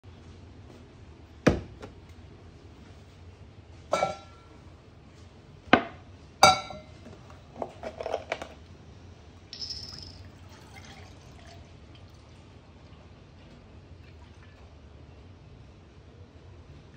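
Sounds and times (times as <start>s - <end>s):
milk pouring: 9.6s - 13.1s.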